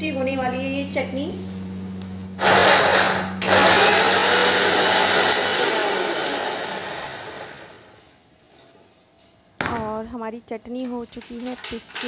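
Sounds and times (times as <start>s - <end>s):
electric mixer grinder running: 2.4s - 8.1s.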